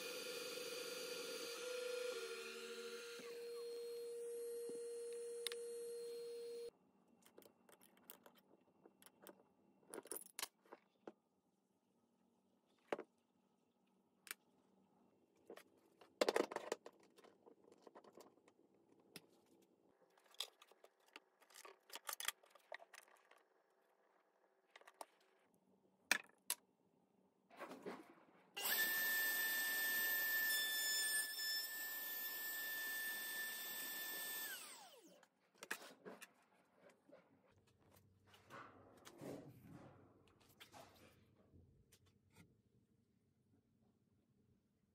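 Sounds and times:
router motor whine: 0:00.0 - 0:06.7, 0:28.6 - 0:35.2.

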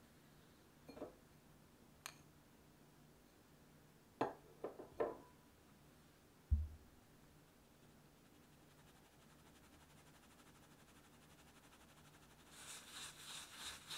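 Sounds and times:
dull low thump: 0:06.5 - 0:06.8.

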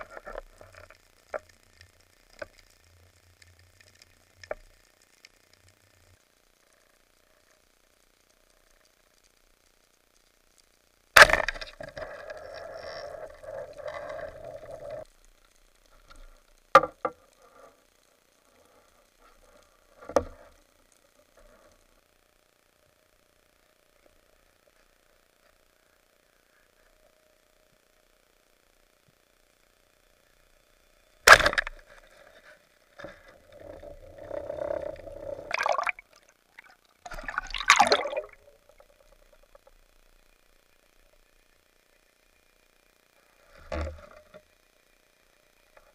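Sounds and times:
speargun firing crack: 0:31.3 - 0:31.7
rushing water and bubbles: 0:33.4 - 0:39.5
splashing: 0:35.5 - 0:38.7.

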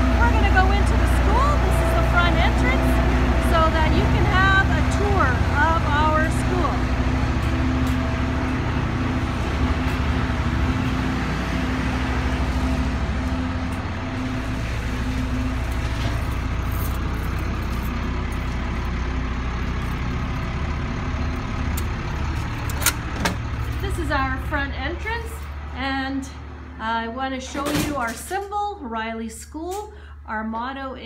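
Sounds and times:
heavy machinery engine humming: 0:00.0 - 0:28.9.

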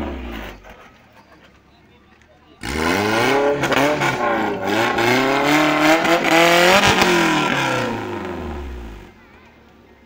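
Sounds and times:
off-road engine revving: 0:00.0 - 0:01.0, 0:02.6 - 0:09.3.

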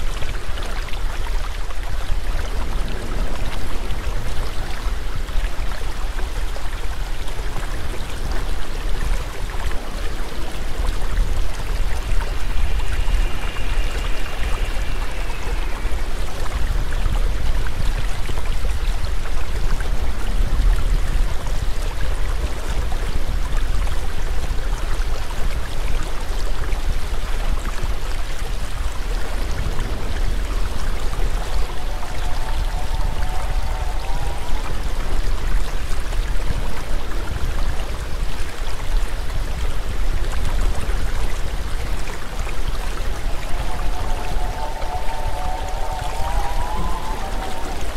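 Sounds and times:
rushing water: 0:00.0 - 0:47.9
deep rumble: 0:09.2 - 0:18.0, 0:29.2 - 0:37.2, 0:40.7 - 0:47.9
faint high thin tone: 0:11.6 - 0:17.2, 0:42.8 - 0:47.9.

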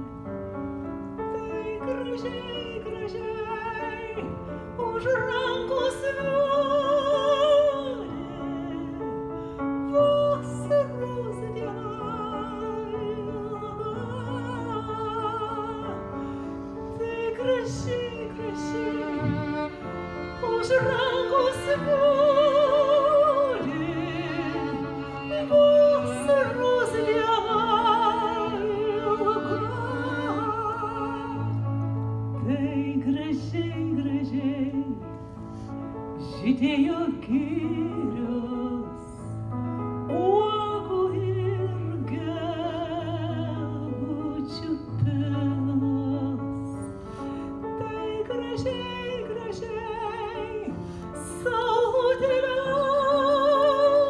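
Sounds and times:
violin holding notes: 0:01.3 - 0:38.9.

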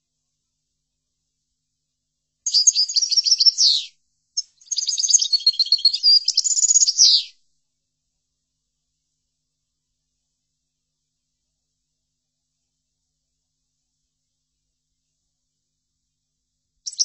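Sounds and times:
goldfinch singing: 0:02.5 - 0:03.9, 0:04.6 - 0:07.3.

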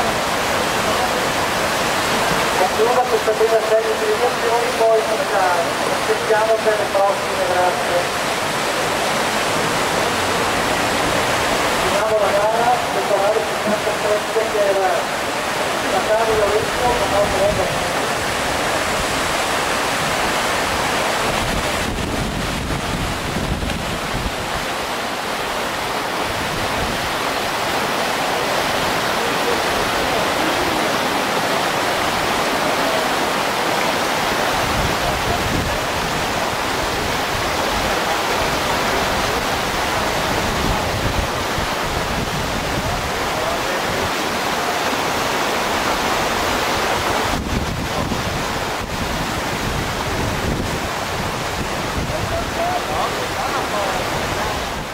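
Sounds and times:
whitewater rapids rushing: 0:00.0 - 0:54.9.

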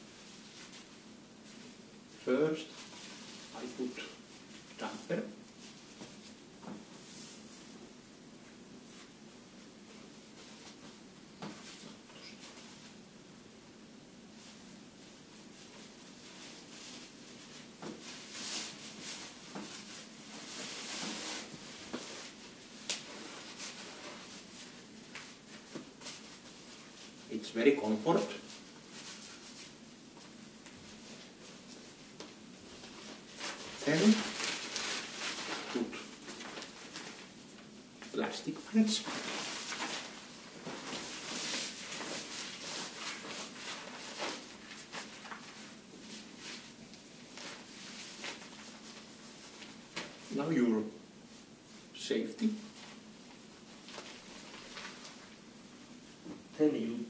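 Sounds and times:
plastic pants rustling: 0:14.4 - 0:50.5, 0:51.3 - 0:56.6
diaper plastic rustling and crinkling: 0:32.8 - 0:37.4, 0:38.7 - 0:50.4, 0:53.6 - 0:55.4.

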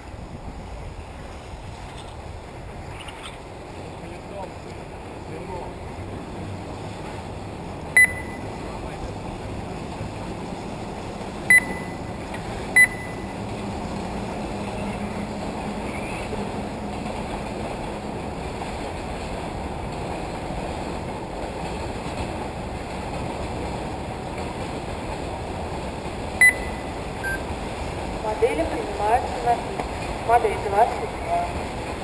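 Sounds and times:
track-side noise: 0:00.0 - 0:32.0
short electronic beeps: 0:08.0 - 0:08.6, 0:11.5 - 0:12.2, 0:12.8 - 0:13.4, 0:26.4 - 0:27.5.

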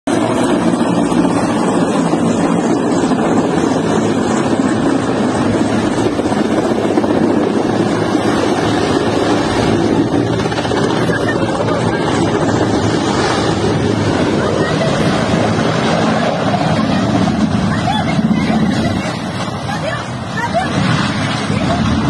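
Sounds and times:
helicopter rotor and engines: 0:00.0 - 0:22.0
wind buffeting microphone: 0:00.1 - 0:22.0.

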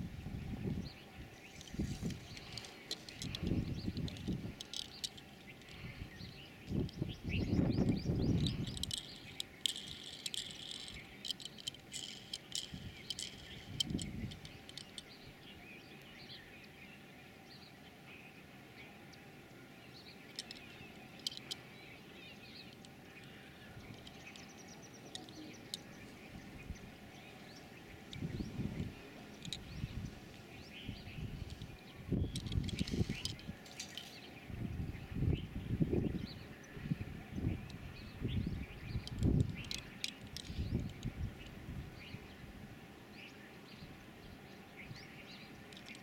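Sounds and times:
birds chirping: 0:00.0 - 0:46.0.

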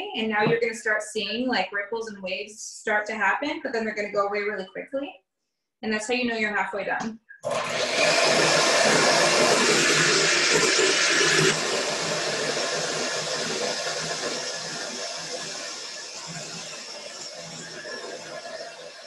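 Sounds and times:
electric hand mixer whipping cream: 0:07.4 - 0:19.0.

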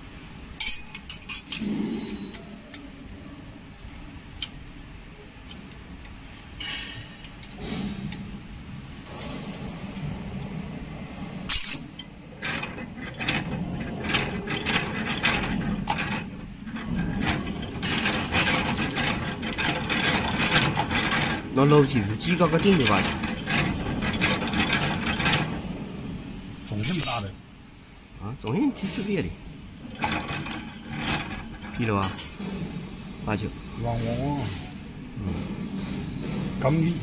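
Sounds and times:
fast mechanical clatter: 0:11.5 - 0:25.9, 0:29.8 - 0:32.9
loud machine clack: 0:12.4 - 0:25.8, 0:29.8 - 0:32.8.

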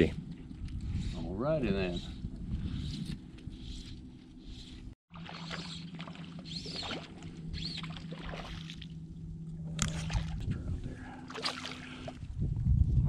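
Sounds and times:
low rumble of wind or water: 0:00.0 - 0:13.0
boat motor humming: 0:01.7 - 0:12.4
bird chirps: 0:05.4 - 0:08.0.

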